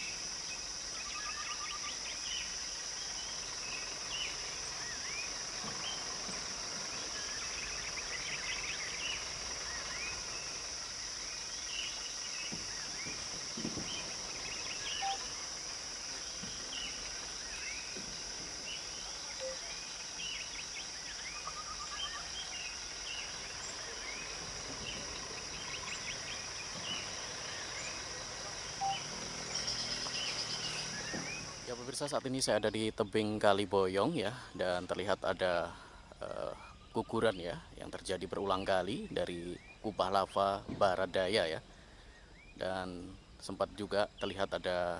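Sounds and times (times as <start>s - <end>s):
high insect drone: 0.0s - 44.9s
bird chirps and calls: 6.8s - 15.5s, 16.2s - 31.7s.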